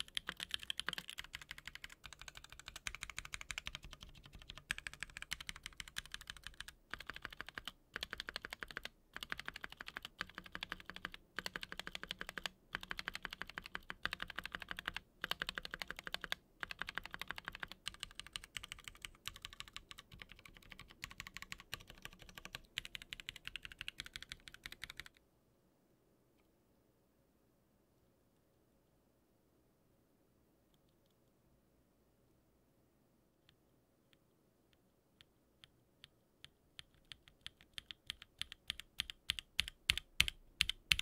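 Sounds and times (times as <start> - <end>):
fast mechanical keyboard typing: 0.0 - 25.2, 36.8 - 41.0.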